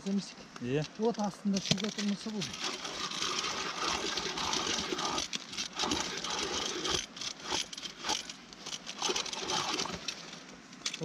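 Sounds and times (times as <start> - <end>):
ice auger scraping ice: 1.8 - 10.3.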